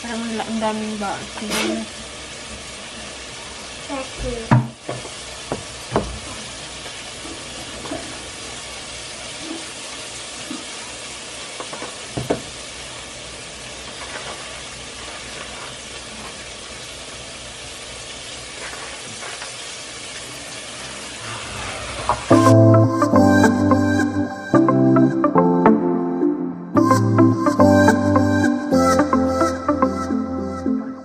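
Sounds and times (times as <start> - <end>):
food sizzling: 0.0 - 25.3
music: 22.3 - 31.0.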